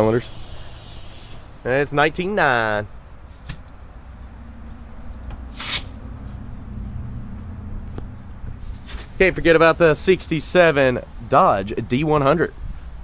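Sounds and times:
compressed air hissing from hose: 0.0 - 1.6, 5.5 - 6.0, 8.6 - 13.0
low steady hum: 0.0 - 13.0.

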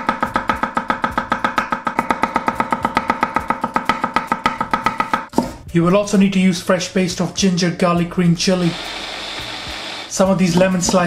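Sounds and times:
knife chopping on wooden board: 0.0 - 5.6, 10.5 - 11.0.

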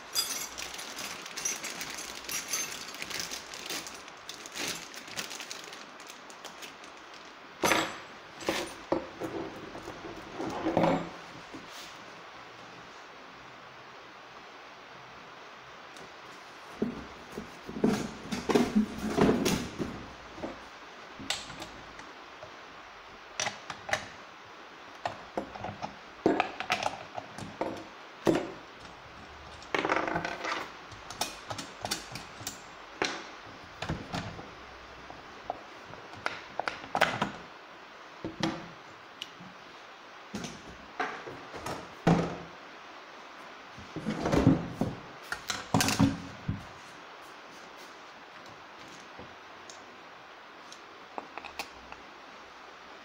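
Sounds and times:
metal parts rattling: 0.0 - 8.8.

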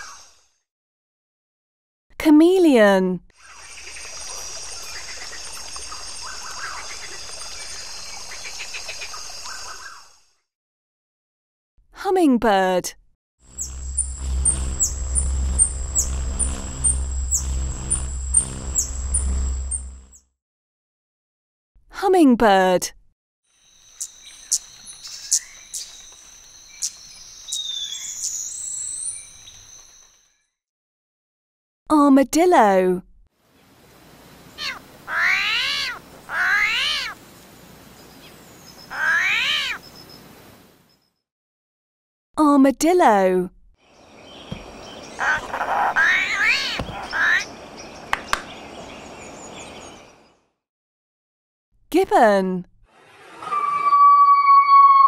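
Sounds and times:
hummingbird wings humming: 13.5 - 20.2
animal calls: 45.2 - 47.5
sharp downward bird squeak: 53.1 - 55.0.

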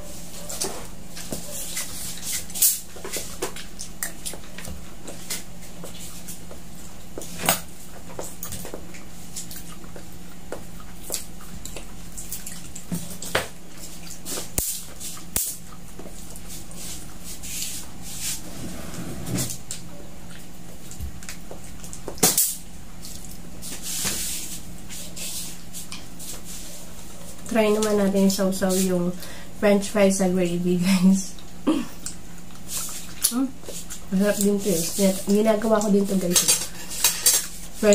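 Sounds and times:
steady low hum: 0.0 - 37.9
chewing: 0.5 - 17.8, 19.6 - 23.5, 31.3 - 37.7.

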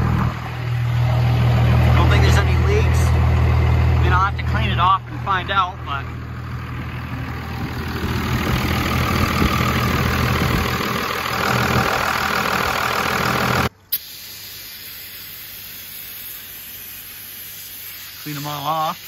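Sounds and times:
diesel truck engine idling: 0.0 - 13.7
aerosol spray hiss: 13.9 - 19.0.

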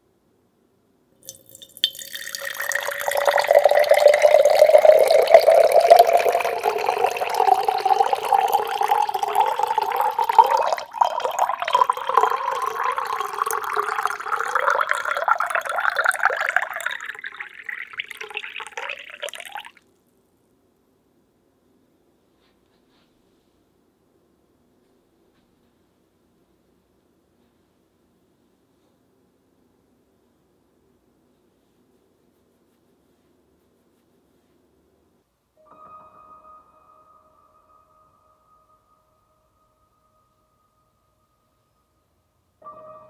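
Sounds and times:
water pouring into glass jar: 1.2 - 19.8.

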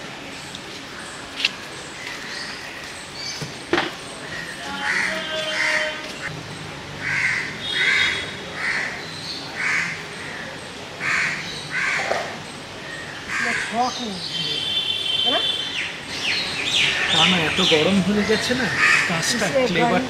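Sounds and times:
bird calling: 7.0 - 19.8.

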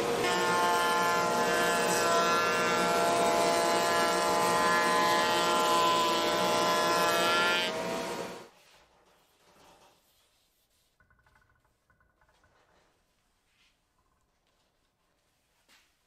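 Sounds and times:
router whining: 0.0 - 8.5
rush of wood cutting: 0.0 - 8.5.

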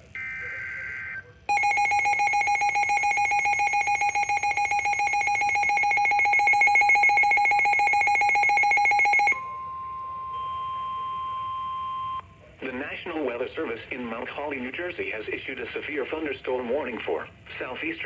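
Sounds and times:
steady radio alarm tone: 0.0 - 10.3
rapidly pulsing electronic beep: 0.2 - 9.6.

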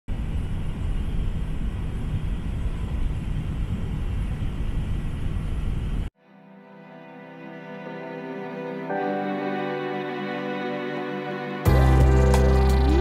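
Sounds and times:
airliner cabin engine rumble: 0.1 - 6.1.

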